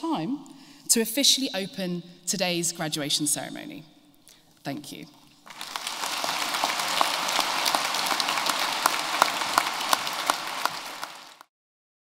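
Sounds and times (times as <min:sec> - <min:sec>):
audience applauding: 0:05.5 - 0:11.5.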